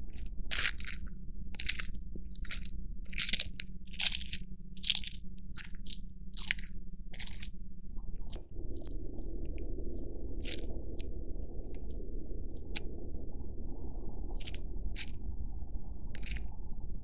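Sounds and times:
dry leaves crackling: 0:00.5 - 0:07.5, 0:10.4 - 0:12.9, 0:14.3 - 0:15.2, 0:16.1 - 0:16.6
steady low hiss: 0:04.4 - 0:17.0.

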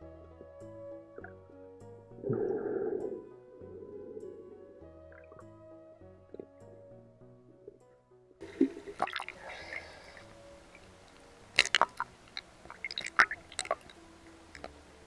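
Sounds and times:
background music: 0:00.0 - 0:15.0
water splashing and dripping: 0:08.6 - 0:09.8, 0:10.7 - 0:14.7.

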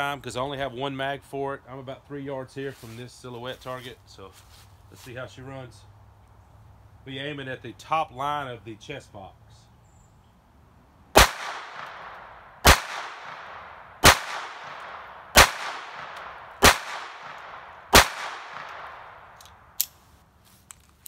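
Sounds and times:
pistol shots with echo: 0:11.2 - 0:19.4.

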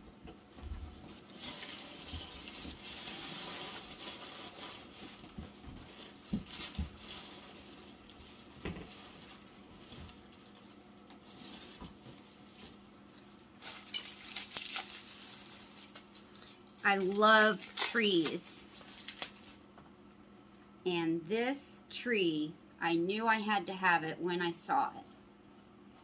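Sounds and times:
rustling: 0:00.4 - 0:19.7.

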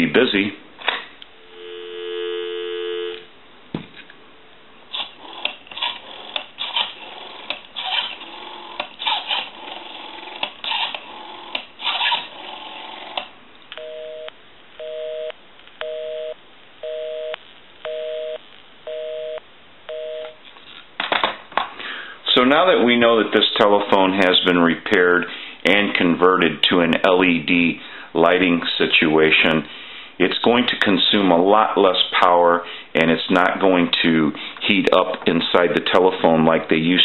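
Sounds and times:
telephone busy signal beeps: 0:01.5 - 0:03.2, 0:13.8 - 0:20.4.

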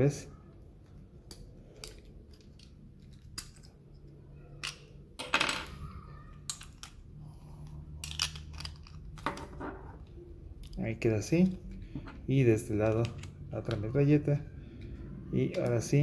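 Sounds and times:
plastic toy parts clicking: 0:00.8 - 0:05.8, 0:06.4 - 0:09.4, 0:12.8 - 0:14.0
plastic parts rattling clatter: 0:01.2 - 0:05.8, 0:06.4 - 0:07.0, 0:07.6 - 0:10.8.

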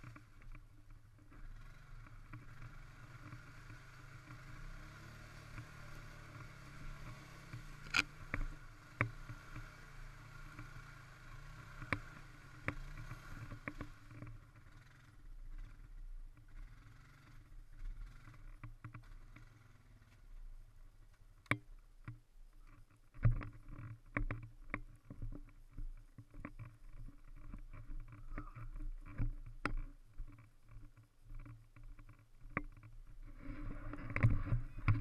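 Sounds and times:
atv engine running low: 0:00.0 - 0:35.0
knocks and rattles: 0:21.4 - 0:35.0.

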